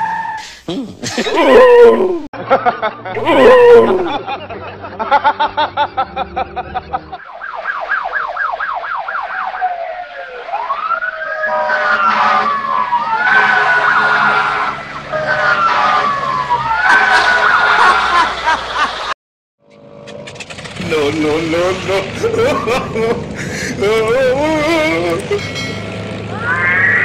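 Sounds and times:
emergency vehicle siren: 0:01.4 - 0:02.2, 0:03.2 - 0:04.3, 0:07.1 - 0:18.6, 0:24.2 - 0:27.0.

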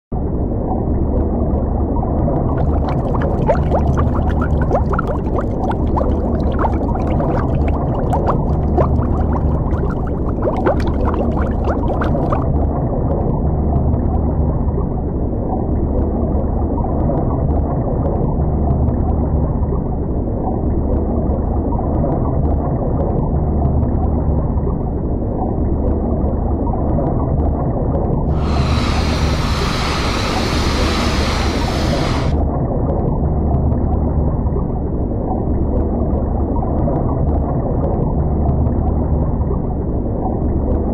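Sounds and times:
muffled underwater rumble: 0:00.2 - 0:40.9
bubbles fizzing: 0:02.5 - 0:12.5, 0:28.3 - 0:32.4
sudden hiss: 0:28.3 - 0:32.4.

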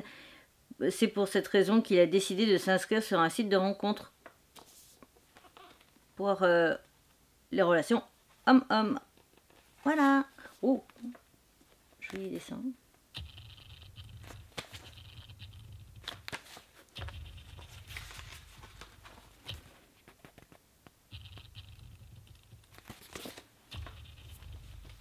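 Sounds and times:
book pages flipping: 0:04.2 - 0:05.9, 0:10.9 - 0:12.4, 0:13.2 - 0:25.0
faint low hum: 0:04.9 - 0:25.0.

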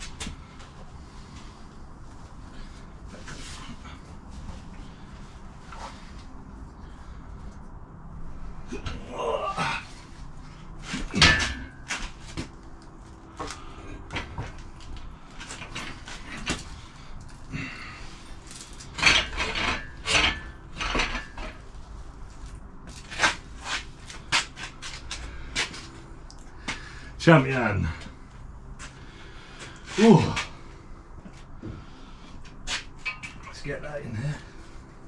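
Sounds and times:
metal clanks and knocks: 0:10.9 - 0:12.5, 0:18.8 - 0:21.6.

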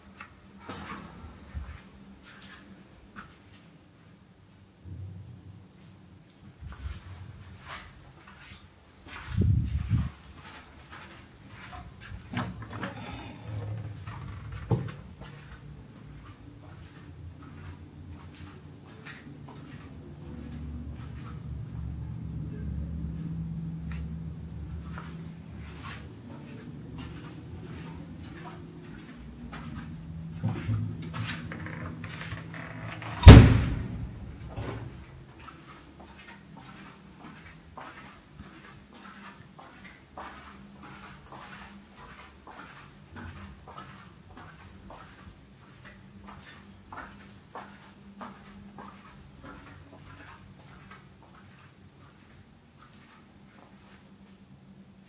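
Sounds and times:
low steady hum: 0:11.7 - 0:36.0
door banging shut: 0:31.7 - 0:34.9.

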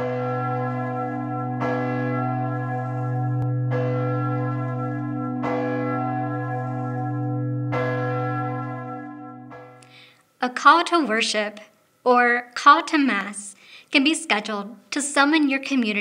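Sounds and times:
large church bell ringing: 0:00.0 - 0:09.9.

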